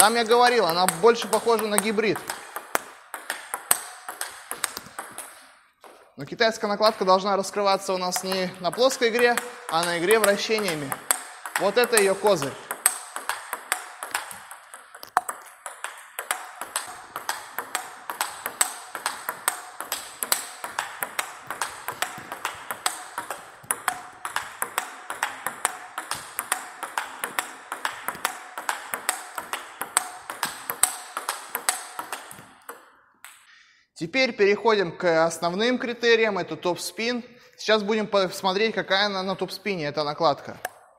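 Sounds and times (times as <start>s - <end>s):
ball bouncing on table: 0.0s - 6.1s, 7.8s - 33.4s
ping pong ball hitting paddles: 0.0s - 6.1s, 6.7s - 33.5s, 40.6s - 40.9s.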